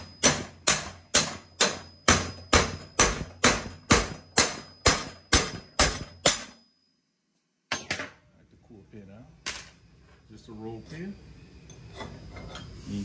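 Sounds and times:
hammer striking metal punch: 0.0s - 6.7s.

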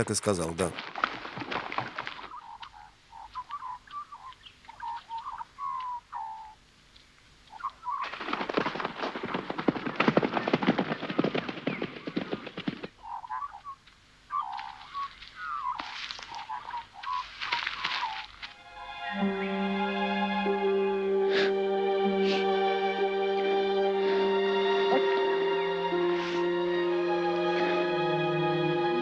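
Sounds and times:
birds chirping: 0.0s - 8.6s, 9.2s - 18.4s
horse hoofbeats galloping: 8.0s - 13.0s.

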